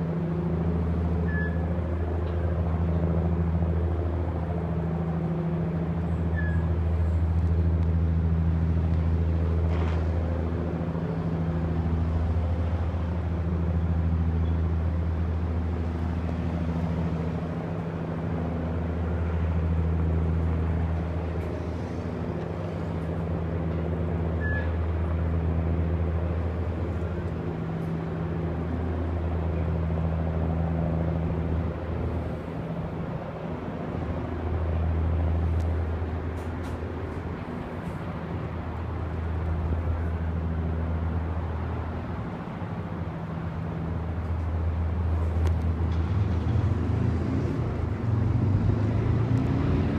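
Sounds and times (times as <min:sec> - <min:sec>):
low mechanical drone: 0:00.0 - 0:49.9.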